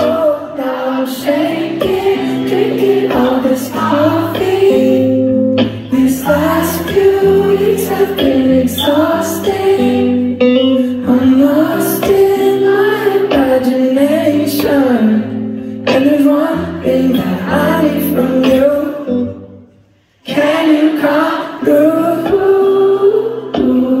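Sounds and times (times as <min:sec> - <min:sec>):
audience singing along: 0:00.0 - 0:15.4, 0:16.0 - 0:19.2, 0:20.2 - 0:24.0
electric guitar and bass chords: 0:01.2 - 0:19.5.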